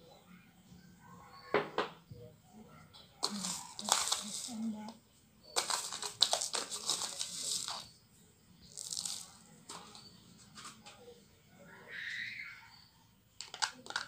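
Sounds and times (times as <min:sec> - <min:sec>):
sugar pouring into glass bowl: 0:03.2 - 0:04.8, 0:05.6 - 0:07.9, 0:08.6 - 0:10.0.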